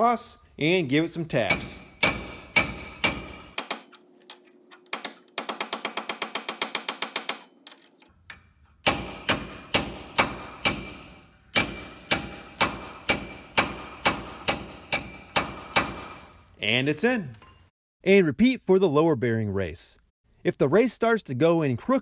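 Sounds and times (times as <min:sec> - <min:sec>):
hammer striking metal drift: 0:01.4 - 0:03.9, 0:08.3 - 0:16.3.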